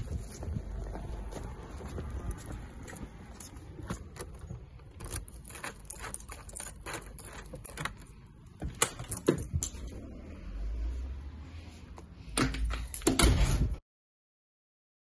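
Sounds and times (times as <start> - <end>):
keys jangling: 3.3 - 9.9
lock and handle metallic clicks: 3.4 - 9.9.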